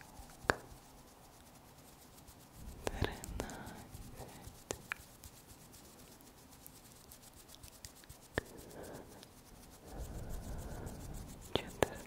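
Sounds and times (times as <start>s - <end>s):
hands rubbing: 0.0s - 12.0s.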